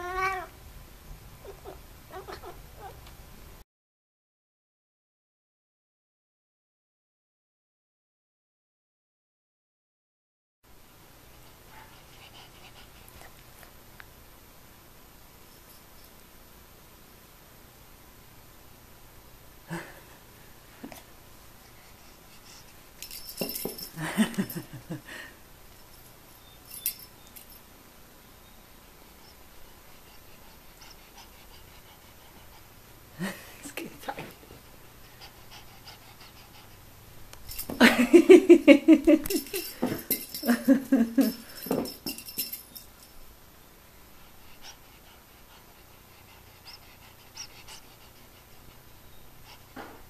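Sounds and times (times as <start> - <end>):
cat chirping calls: 1.4 - 3.0.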